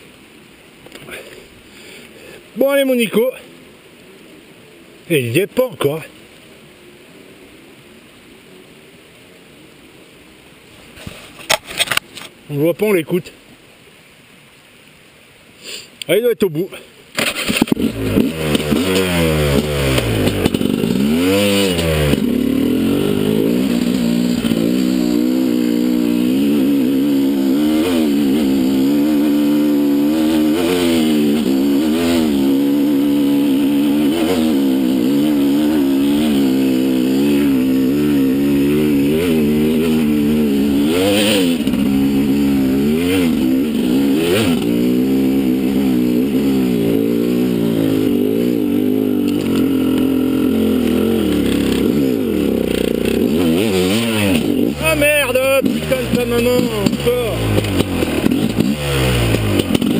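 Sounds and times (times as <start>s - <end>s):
motorcycle engine revving: 17.2s - 59.9s.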